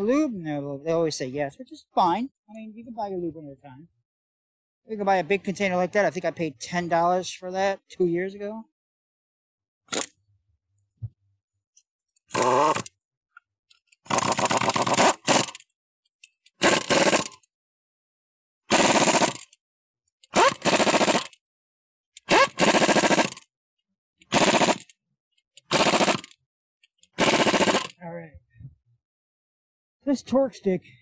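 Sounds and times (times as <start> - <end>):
air impact wrench hammering: 12.3 - 12.9, 14.1 - 15.6, 16.6 - 17.5, 18.7 - 19.6, 20.3 - 21.4, 22.2 - 23.4, 24.3 - 24.9, 25.6 - 26.4, 27.2 - 28.0.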